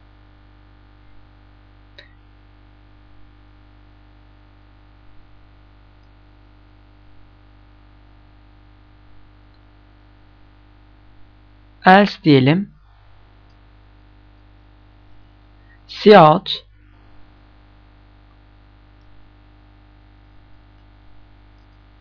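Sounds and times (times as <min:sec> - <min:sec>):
electrical mains hum: 0:00.0 - 0:22.0
soft clicks: 0:21.5 - 0:21.9.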